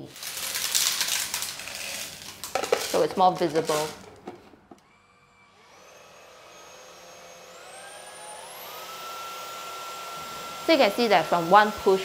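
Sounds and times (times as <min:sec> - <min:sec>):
vacuum motor whine: 0:03.7 - 0:12.0.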